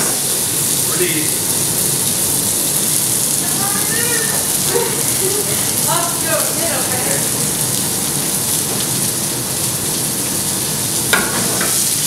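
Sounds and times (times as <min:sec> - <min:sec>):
potatoes sizzling in a frying pan: 0:00.0 - 0:12.0.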